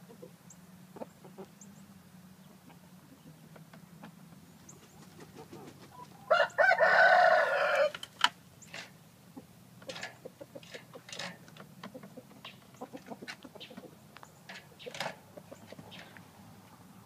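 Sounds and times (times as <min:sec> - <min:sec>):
roosters clucking: 0:00.0 - 0:17.0
rooster crowing: 0:06.2 - 0:08.0.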